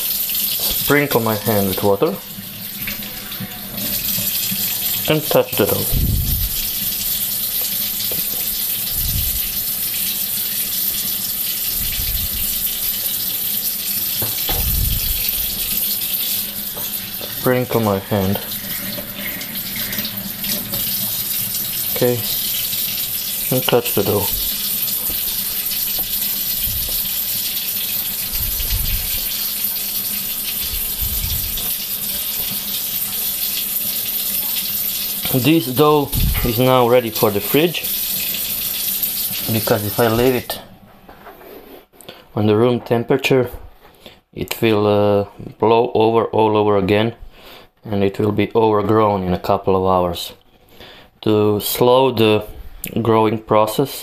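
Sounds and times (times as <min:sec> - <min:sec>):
tap running into sink: 0:07.6 - 0:09.5, 0:14.1 - 0:15.9, 0:16.7 - 0:17.4, 0:24.0 - 0:27.3
low dull thumps: 0:14.5 - 0:15.4.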